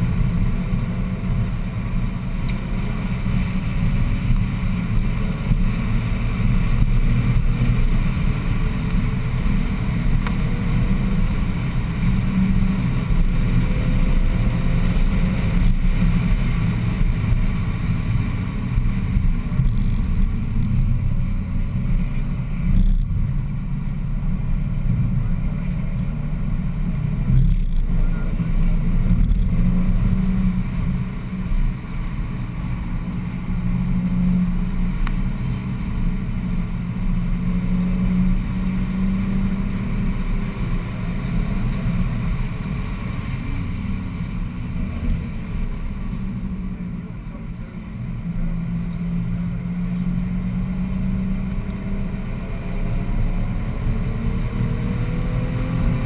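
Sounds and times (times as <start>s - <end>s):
car engine revving: 0.0s - 56.0s
road and wind noise: 0.0s - 56.0s.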